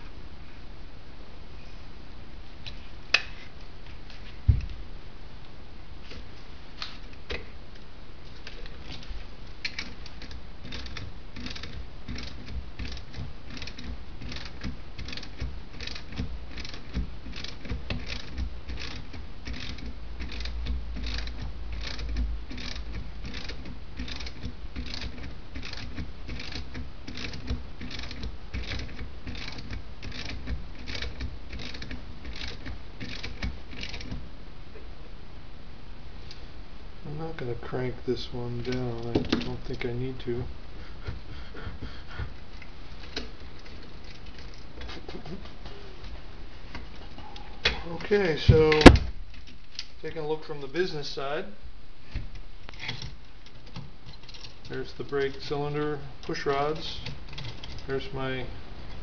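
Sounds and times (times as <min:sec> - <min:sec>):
ratchet wrench clicking: 0:09.7 - 0:34.1.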